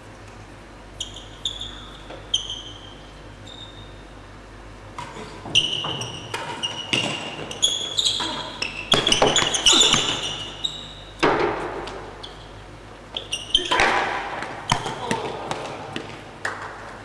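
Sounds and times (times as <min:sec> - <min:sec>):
shoes squeaking on court floor: 0:01.0 - 0:04.2, 0:05.0 - 0:16.7
rackets striking hard ball: 0:08.9 - 0:10.4, 0:11.2 - 0:12.2, 0:13.6 - 0:16.7.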